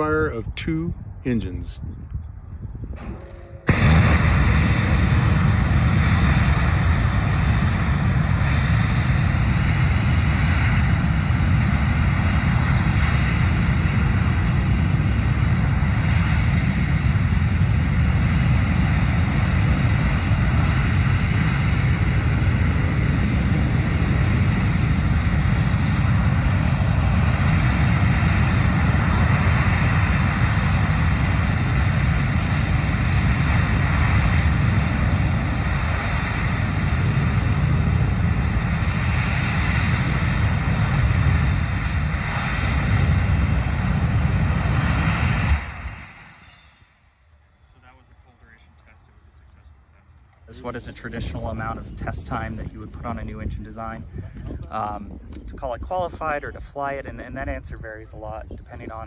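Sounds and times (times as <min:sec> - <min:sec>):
rocket engine firing: 0:02.8 - 0:46.9, 0:50.5 - 0:59.0.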